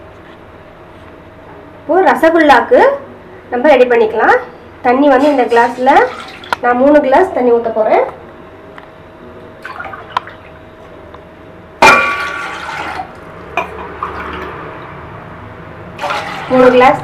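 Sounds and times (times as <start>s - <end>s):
water pouring into metal pot: 5.2s - 6.5s, 12.2s - 13.1s, 16.0s - 16.8s.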